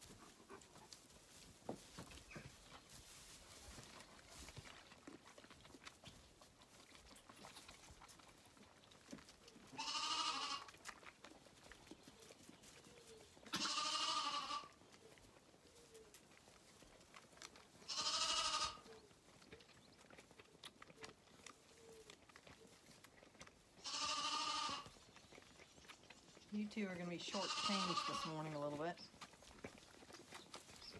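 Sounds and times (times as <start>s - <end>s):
lambs bleating: 9.8s - 10.8s, 13.5s - 14.8s, 17.8s - 18.9s, 23.8s - 24.9s, 27.2s - 28.8s.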